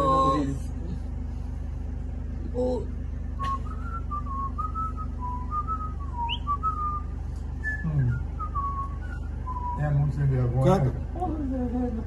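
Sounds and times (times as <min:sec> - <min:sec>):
man whistling a tune: 0:03.4 - 0:09.8.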